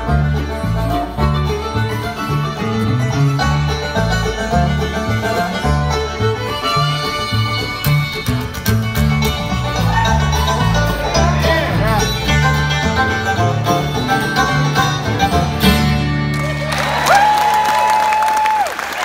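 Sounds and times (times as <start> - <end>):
bluegrass band playing: 0.0 - 17.3
audience applause: 16.3 - 19.0.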